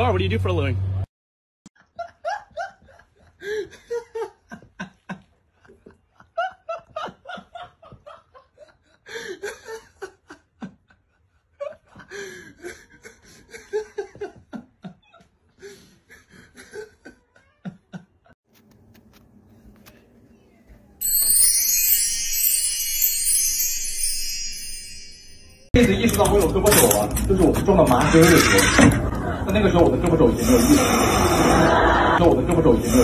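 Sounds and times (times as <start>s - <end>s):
person laughing hard: 30.4s - 32.2s.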